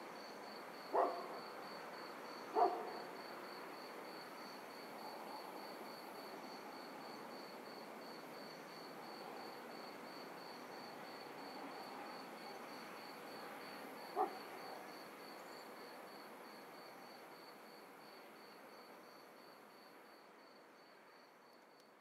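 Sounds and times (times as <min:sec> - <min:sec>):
crickets chirping: 0:00.0 - 0:21.8
soft ambient hiss: 0:00.0 - 0:22.0
dog barking: 0:00.9 - 0:01.3, 0:02.6 - 0:03.0, 0:14.2 - 0:14.4.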